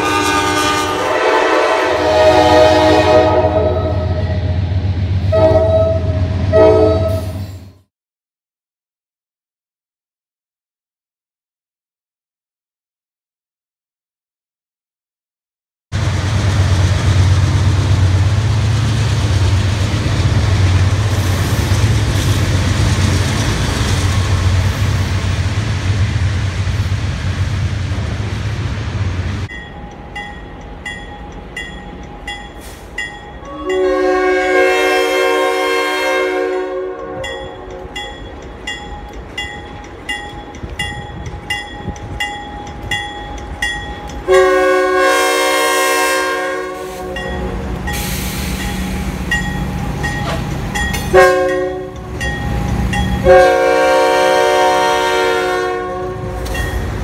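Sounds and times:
locomotive air horn blasts: 0:00.0 - 0:04.6, 0:05.3 - 0:07.5, 0:33.4 - 0:37.7, 0:44.3 - 0:48.6, 0:51.1 - 0:52.0, 0:53.2 - 0:56.5
locomotive rumbling past: 0:00.0 - 0:07.8, 0:16.0 - 0:57.0
crossing bell ringing: 0:29.5 - 0:34.8, 0:36.8 - 0:44.9, 0:47.1 - 0:53.8, 0:56.2 - 0:57.0.

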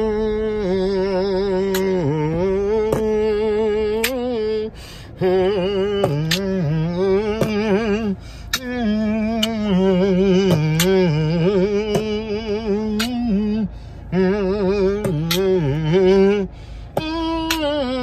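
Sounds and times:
man humming: 0:00.0 - 0:18.0
sharp clicks: 0:04.0 - 0:04.3, 0:06.0 - 0:06.5, 0:08.5 - 0:09.7, 0:12.9 - 0:13.3.

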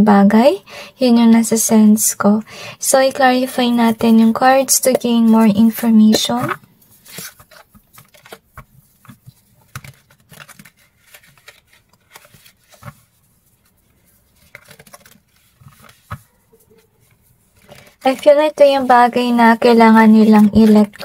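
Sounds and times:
cards being shuffled: 0:03.1 - 0:18.9, 0:20.1 - 0:21.0.

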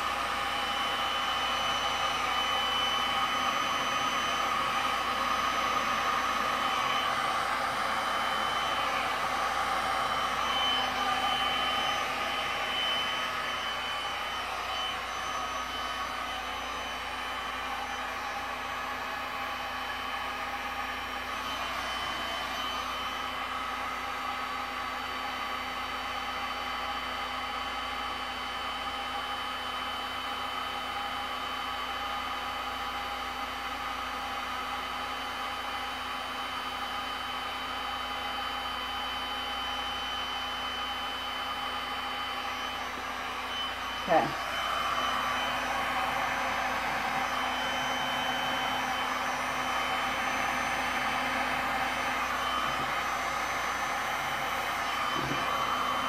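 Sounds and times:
heat gun blowing: 0:00.0 - 0:24.1, 0:40.5 - 0:56.0.

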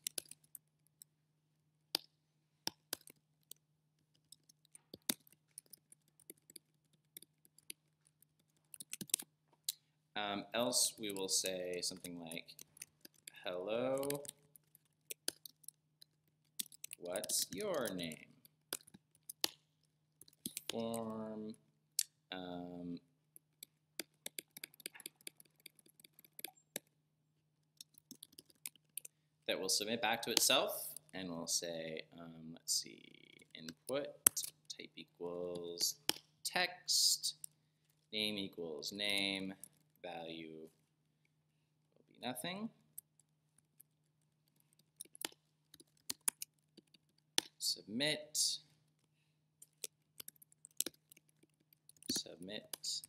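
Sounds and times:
computer keyboard typing: 0:00.0 - 0:00.6, 0:02.7 - 0:03.2, 0:04.1 - 0:09.3, 0:10.9 - 0:19.6, 0:20.2 - 0:21.2, 0:23.5 - 0:26.9, 0:27.8 - 0:29.1, 0:43.0 - 0:47.6, 0:49.6 - 0:53.0.

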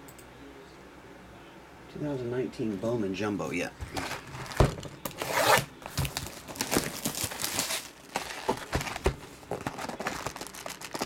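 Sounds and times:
plastic wrap crinkling and tearing: 0:03.9 - 0:11.0
box cutter slicing shrink-wrap: 0:05.1 - 0:08.7.

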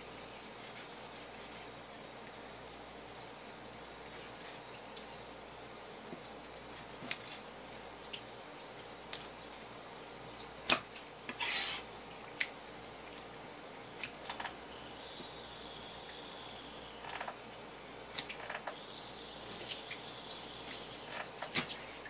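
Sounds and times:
knife scrape: 0:11.3 - 0:11.9.

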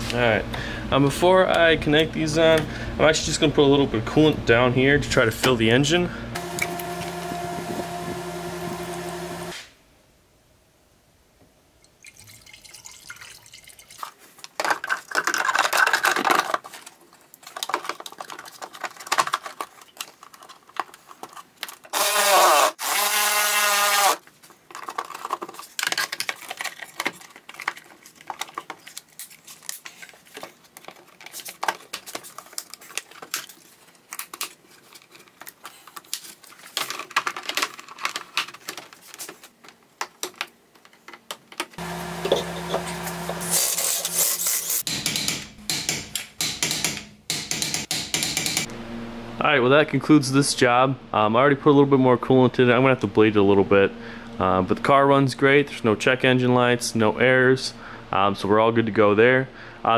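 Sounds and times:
plastic parts clicking and rattling: 0:14.1 - 0:22.1, 0:24.2 - 0:41.8.

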